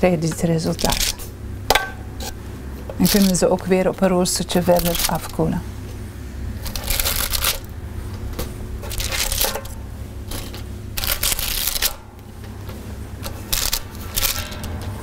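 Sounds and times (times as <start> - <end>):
baking paper crinkling: 3.0 - 3.8, 4.4 - 5.4, 6.6 - 7.7, 8.3 - 12.0.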